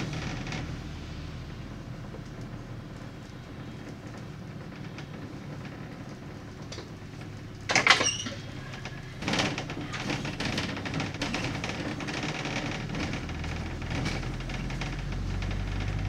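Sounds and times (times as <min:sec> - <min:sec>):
bus engine hum: 0:00.0 - 0:16.0
rattling squeal: 0:07.7 - 0:11.8.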